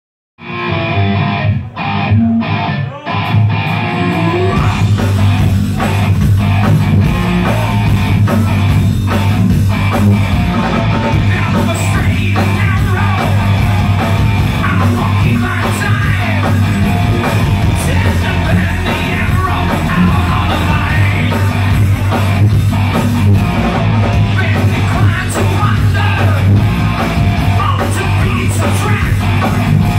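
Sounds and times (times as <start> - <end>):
distorted electric guitars: 0.4 - 29.9
drums: 0.4 - 29.9
heavy metal band playing live: 0.4 - 29.9
person singing: 2.8 - 5.9, 10.6 - 13.8, 14.6 - 22.4, 24.1 - 26.6, 27.5 - 29.7.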